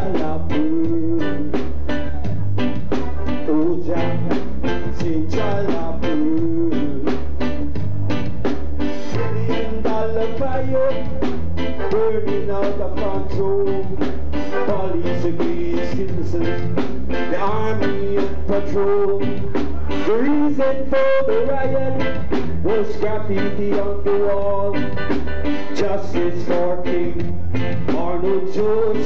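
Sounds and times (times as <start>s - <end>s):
reggae band playing: 0.0s - 29.0s
voice singing with sliding pitch: 9.0s - 24.8s, 25.8s - 29.0s.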